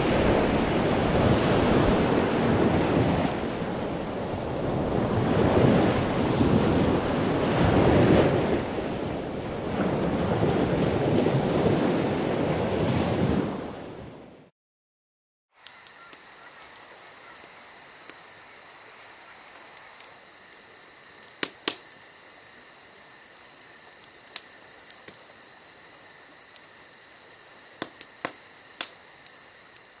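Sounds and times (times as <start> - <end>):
high-pitched insect trill: 15.6 - 30.0
sharp clicks: 21.2 - 22.0, 27.8 - 30.0.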